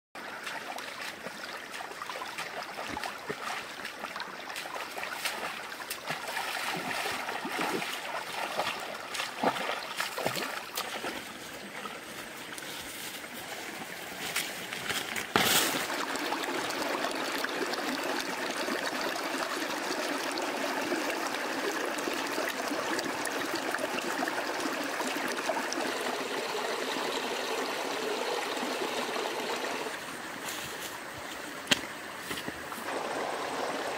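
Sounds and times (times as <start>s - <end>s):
water trickling in stream: 0.2s - 33.9s
plants rustling and crackling: 11.4s - 15.9s.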